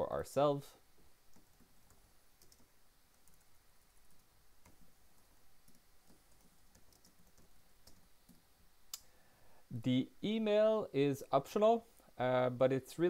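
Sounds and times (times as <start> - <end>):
computer keyboard typing: 1.3 - 8.4.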